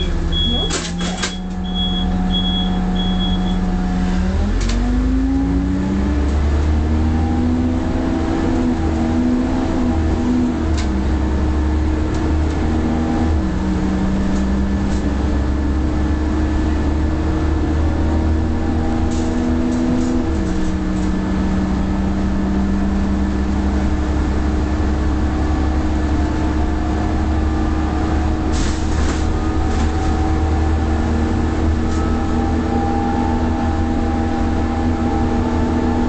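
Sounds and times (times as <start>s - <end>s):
high beep: 0.0s - 3.7s
bus diesel engine running: 0.0s - 36.0s.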